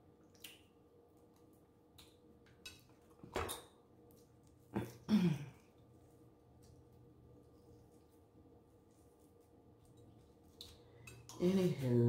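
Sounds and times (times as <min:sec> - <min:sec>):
low humming voice: 0:11.4 - 0:12.0.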